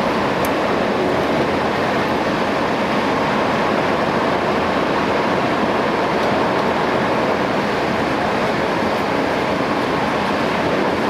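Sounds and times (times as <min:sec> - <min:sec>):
train interior roar: 0:00.0 - 0:11.0.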